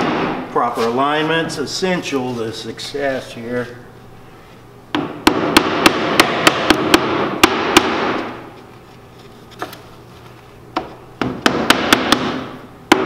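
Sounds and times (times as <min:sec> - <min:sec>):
hammer tapping wood: 0:11.2 - 0:13.0.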